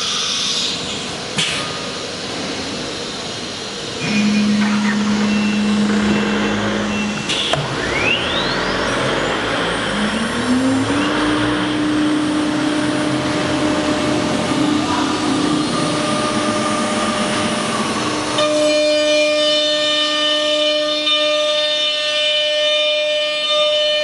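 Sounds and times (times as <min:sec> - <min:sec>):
machine hum: 0:02.2 - 0:21.1
steady tones: 0:03.7 - 0:19.4.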